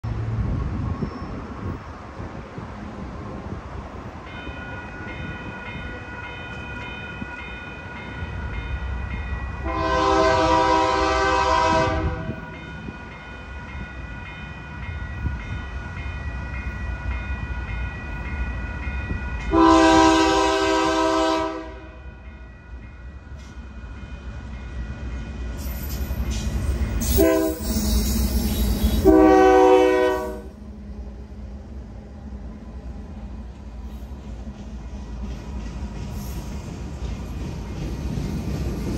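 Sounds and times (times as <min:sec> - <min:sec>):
train rumble: 0:00.0 - 0:38.9
crossing bell ringing: 0:04.2 - 0:30.4
train horn blasts: 0:09.6 - 0:12.5, 0:19.5 - 0:22.0, 0:27.0 - 0:30.6.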